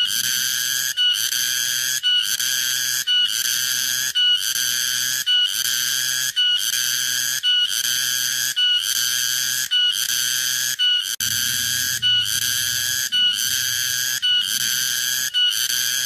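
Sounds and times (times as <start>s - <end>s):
cicada buzzing song: 0.0s - 16.0s.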